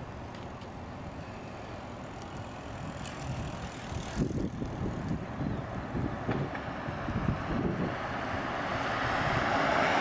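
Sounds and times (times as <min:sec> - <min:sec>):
street traffic: 0:00.0 - 0:10.0
wind buffeting microphone: 0:02.4 - 0:10.0
streetcar approaching: 0:05.2 - 0:10.0
car driving past: 0:06.7 - 0:10.0.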